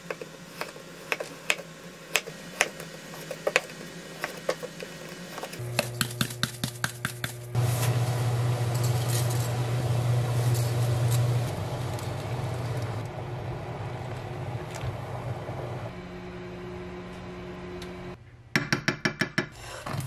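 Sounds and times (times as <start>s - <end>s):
hob humming: 7.2s - 18.2s
water boiling in a pot: 7.6s - 15.9s.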